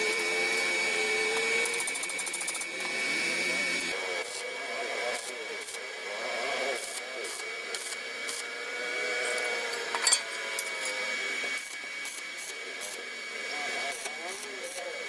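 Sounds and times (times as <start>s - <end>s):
welding arc crackling and hissing: 5.1s - 5.9s, 6.8s - 8.6s, 10.6s - 15.0s.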